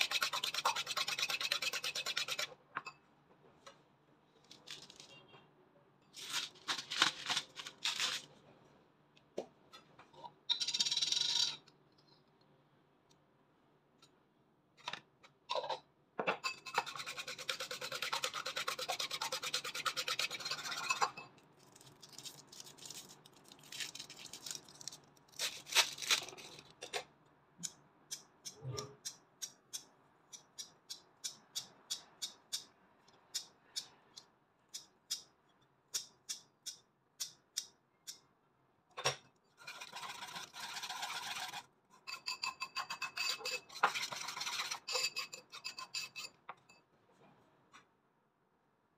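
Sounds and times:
whisk beating eggs in bowl: 0:00.0 - 0:02.5, 0:16.5 - 0:21.2, 0:39.6 - 0:46.3.

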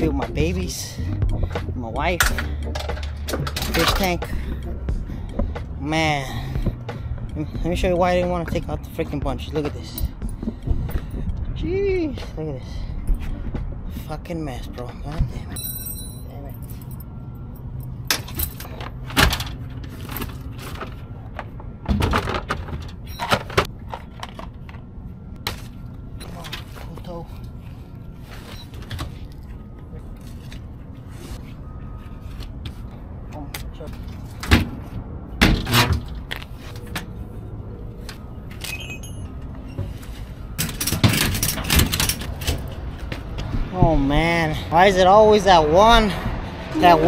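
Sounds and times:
low rumble: 0:00.0 - 0:14.2
clanks and rattles: 0:40.6 - 0:43.5.

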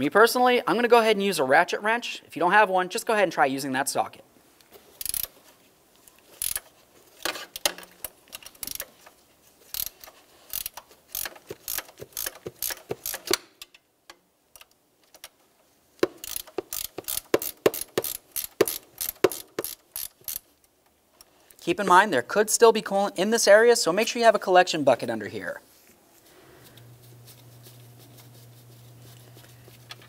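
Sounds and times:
ratcheting wrench clicking: 0:05.0 - 0:05.4, 0:06.3 - 0:09.0, 0:09.7 - 0:13.8, 0:16.0 - 0:20.5.

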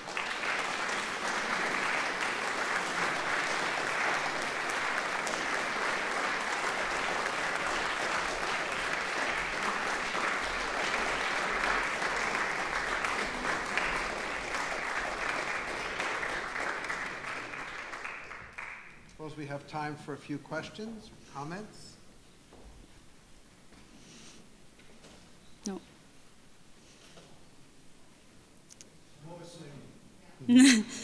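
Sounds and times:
audience applauding: 0:00.0 - 0:19.4.

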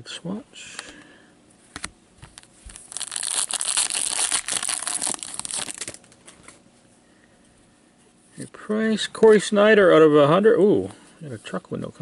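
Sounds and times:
foil wrapper tearing and crinkling: 0:02.7 - 0:06.1.

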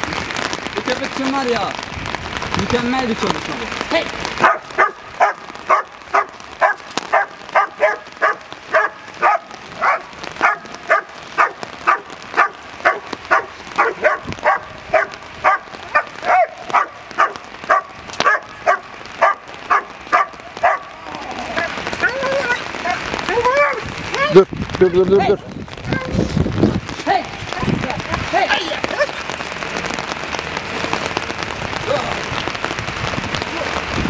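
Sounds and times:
dog barking: 0:04.4 - 0:21.0.

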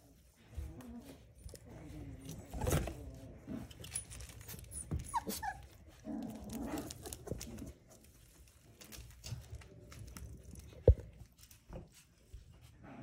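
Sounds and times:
puppy growl: 0:00.3 - 0:11.0
puppy whimpers and yips: 0:04.3 - 0:06.0.

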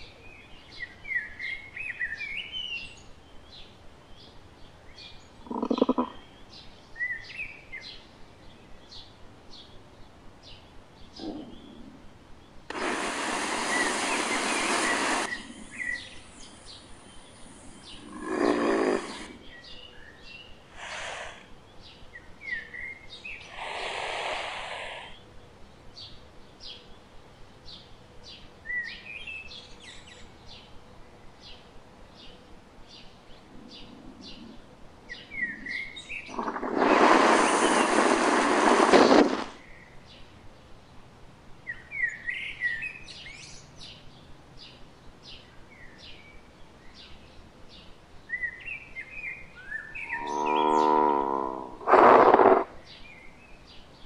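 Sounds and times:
birds chirping: 0:00.0 - 0:54.0
cartoon dinosaur snoring: 0:05.5 - 0:06.2, 0:12.7 - 0:15.9, 0:17.6 - 0:19.4, 0:20.8 - 0:21.4, 0:23.5 - 0:25.2, 0:36.3 - 0:39.6, 0:50.2 - 0:52.7.

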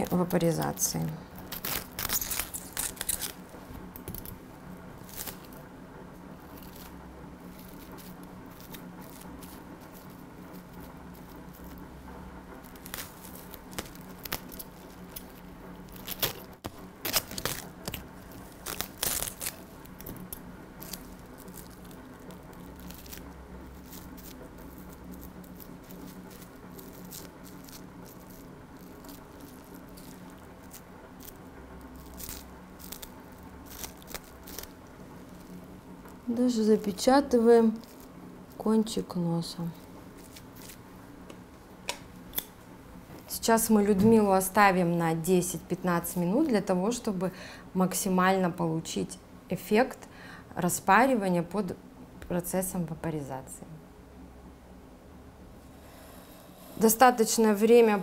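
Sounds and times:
plastic film crinkling and tearing: 0:00.0 - 0:04.3, 0:05.0 - 0:05.6, 0:06.4 - 0:11.9, 0:12.5 - 0:38.7, 0:39.9 - 0:40.9
steady low hum: 0:00.0 - 0:58.0.

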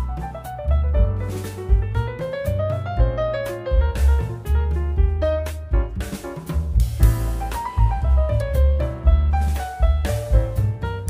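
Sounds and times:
bass line: 0:00.0 - 0:11.0
drum beat: 0:00.0 - 0:11.0
keyboard melody: 0:00.0 - 0:11.0.

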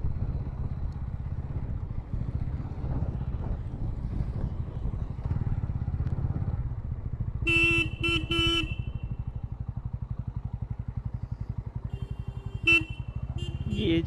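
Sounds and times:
motorcycle engine running: 0:00.0 - 0:14.0
motorcycle horn beeps: 0:07.4 - 0:09.4, 0:11.8 - 0:14.0.

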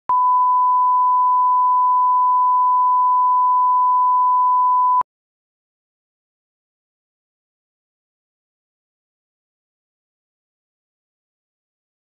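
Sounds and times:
steady test tone beep: 0:00.1 - 0:05.0.

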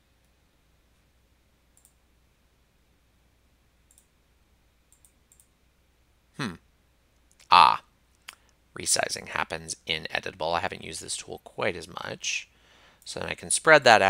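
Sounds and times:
computer mouse clicks: 0:01.8 - 0:02.0, 0:03.9 - 0:04.1, 0:04.9 - 0:05.5
person speaking: 0:06.4 - 0:06.6, 0:07.3 - 0:14.0.

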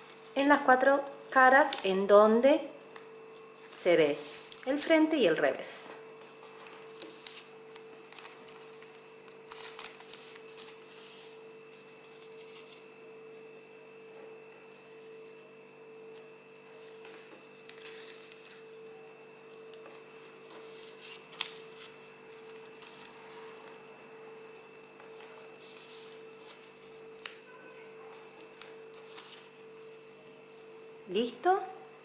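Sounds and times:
faint steady hum: 0:00.0 - 0:32.0
paper being folded and creased: 0:03.3 - 0:05.0, 0:06.2 - 0:12.9, 0:17.2 - 0:18.8, 0:19.5 - 0:23.9, 0:24.5 - 0:27.4, 0:28.2 - 0:30.0.

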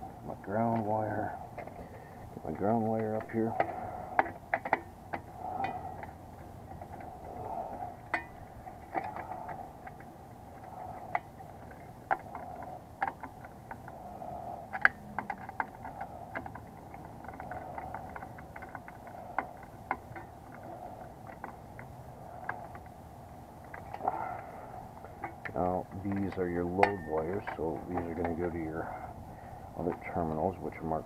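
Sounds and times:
faint background noise: 0:00.0 - 0:31.0
clicks and taps of wiring: 0:25.0 - 0:28.7.

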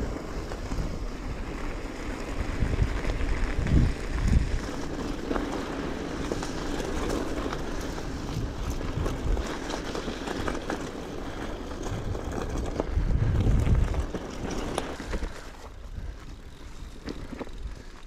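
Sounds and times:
wind buffeting microphone: 0:00.0 - 0:05.1, 0:07.3 - 0:10.2, 0:11.3 - 0:16.3
bicycle rolling rumble: 0:00.0 - 0:18.0.

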